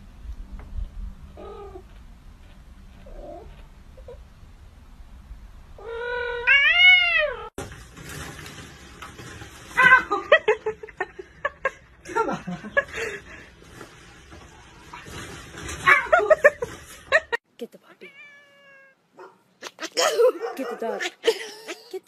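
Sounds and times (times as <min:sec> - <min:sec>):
kitten mewing: 0:19.6 - 0:21.8.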